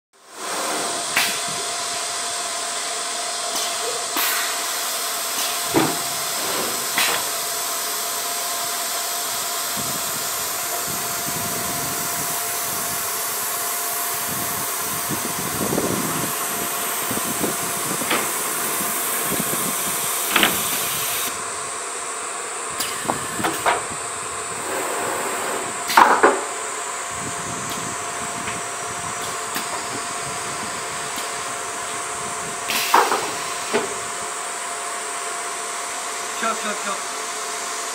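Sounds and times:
constant machine hum: 0:00.2 - 0:37.9
router hiss: 0:00.2 - 0:37.9
board clunks and knocks: 0:05.7 - 0:07.2.

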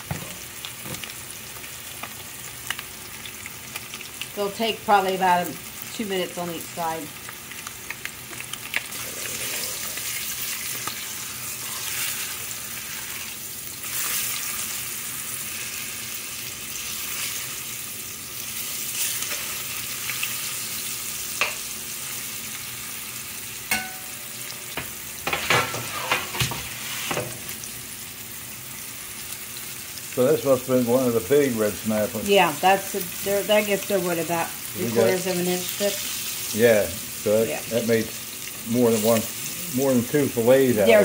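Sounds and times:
fish sizzling in oil: 0:00.0 - 0:41.0
metal spatula scraping pan: 0:25.3 - 0:27.4.

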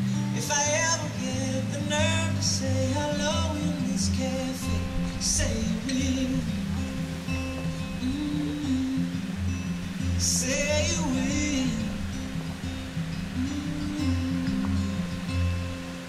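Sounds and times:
person singing: 0:00.0 - 0:07.1, 0:07.9 - 0:15.6
acoustic guitar: 0:00.0 - 0:16.0.

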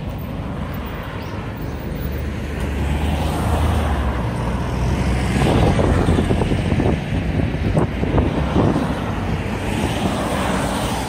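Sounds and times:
road noise: 0:00.0 - 0:11.0
wind buffeting microphone: 0:05.0 - 0:11.0.

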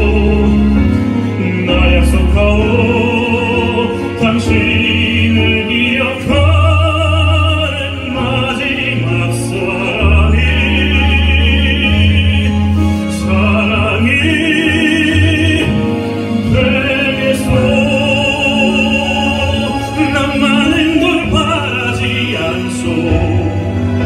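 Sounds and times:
bass notes: 0:00.0 - 0:24.0
instrumental accompaniment: 0:00.0 - 0:24.0
man singing into a microphone: 0:00.0 - 0:24.0.

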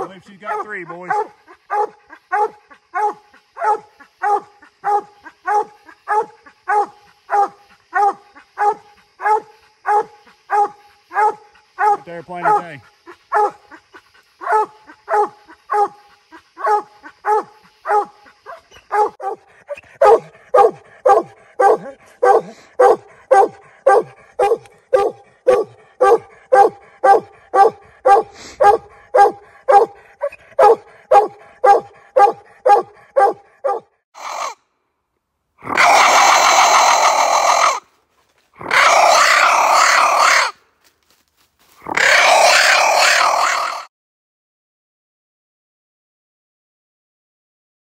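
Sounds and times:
dog barking: 0:00.4 - 0:13.7, 0:14.4 - 0:16.0, 0:16.6 - 0:34.5, 0:35.8 - 0:37.8.

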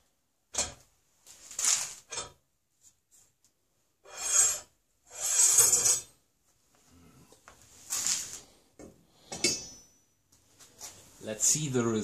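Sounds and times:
cleaning rod scraping through barrel: 0:04.0 - 0:06.2.

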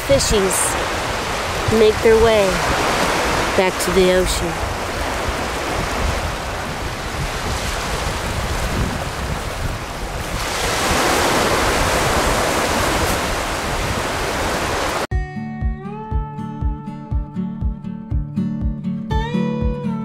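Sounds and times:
steady surf: 0:00.0 - 0:15.1
wind buffeting microphone: 0:00.0 - 0:15.1
acoustic guitar music: 0:15.1 - 0:20.0.

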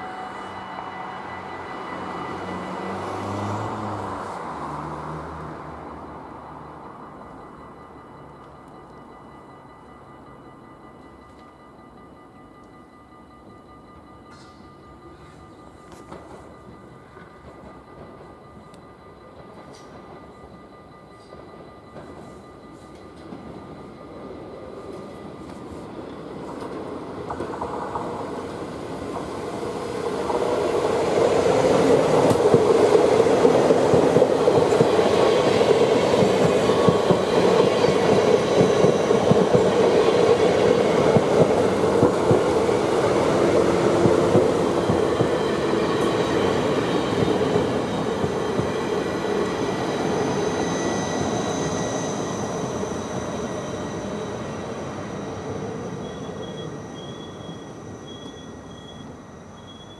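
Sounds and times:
faint rail clatter: 0:08.0 - 0:29.4
train wheels rumbling on rails: 0:14.2 - 0:59.9.

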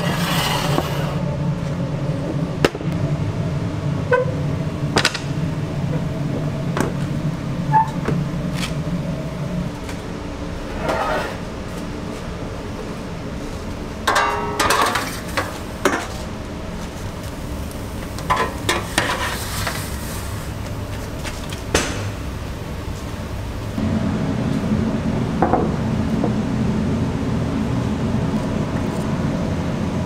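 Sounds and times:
low kitchen hum: 0:00.0 - 0:30.0
metal pans clattering and scraping: 0:14.1 - 0:16.2, 0:18.3 - 0:19.8.

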